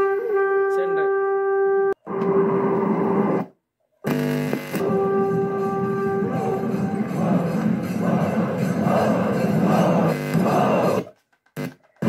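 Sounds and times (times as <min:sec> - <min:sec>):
film soundtrack music: 0:04.8 - 0:11.0.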